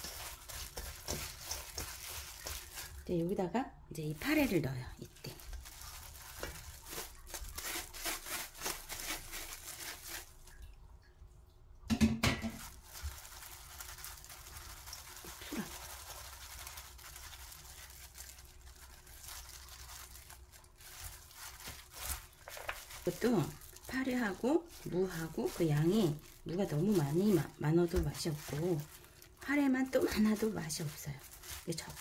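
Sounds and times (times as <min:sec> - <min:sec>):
plastic glove crinkling: 0:00.0 - 0:10.8, 0:12.2 - 0:32.0
wet greens squelching: 0:00.0 - 0:11.2, 0:12.4 - 0:32.0
knock on steel bowl: 0:11.9 - 0:12.6.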